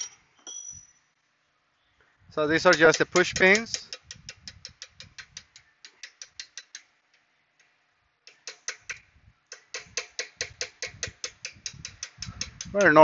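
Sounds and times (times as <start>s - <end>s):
ratchet wrench clicking: 2.6s - 6.9s, 8.3s - 13.0s.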